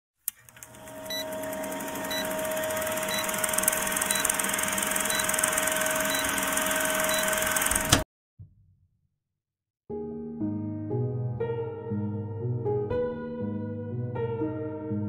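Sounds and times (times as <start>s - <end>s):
film projector whirring: 0.3s - 8.0s.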